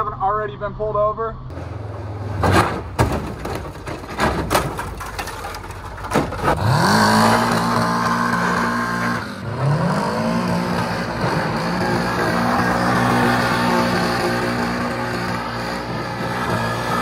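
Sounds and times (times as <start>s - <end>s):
engine pops and knocks: 2.3s - 6.9s
engine revving: 6.4s - 17.0s.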